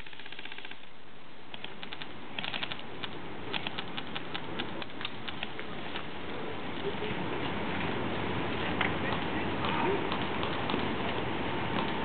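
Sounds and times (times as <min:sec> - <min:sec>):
airsoft guns firing: 0:00.0 - 0:00.9, 0:01.6 - 0:06.0.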